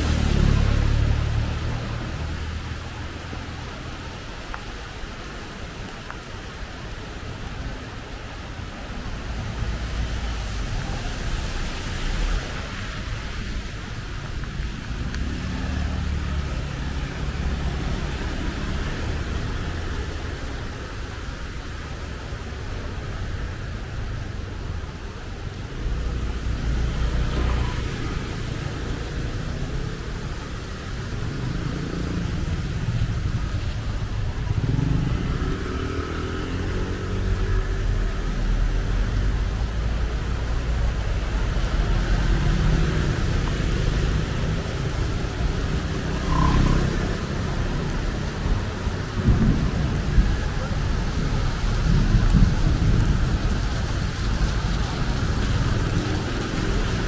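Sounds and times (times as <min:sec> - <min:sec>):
road traffic in rain: 0:00.0 - 0:57.0
vehicle engine hum: 0:12.0 - 0:57.0
engine speeding up: 0:45.6 - 0:47.8.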